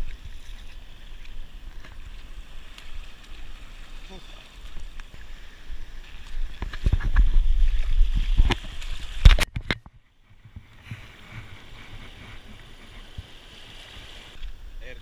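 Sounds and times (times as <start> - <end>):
shallow water over rocks: 0.0 - 15.0
camera handling rumbling and rubbing: 6.0 - 13.3.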